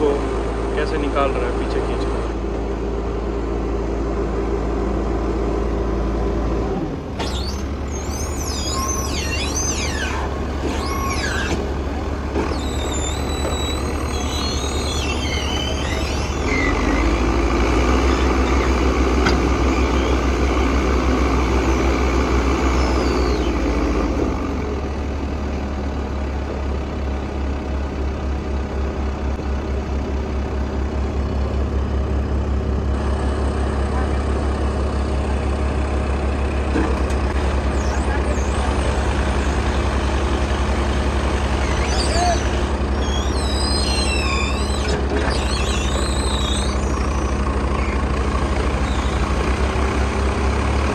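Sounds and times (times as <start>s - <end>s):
diesel engines running: 0.0s - 50.9s.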